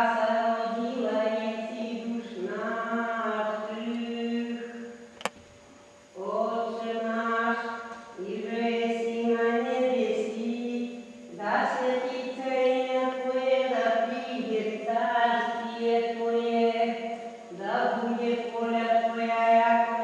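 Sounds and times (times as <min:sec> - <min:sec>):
sharp click: 0:05.2 - 0:05.5.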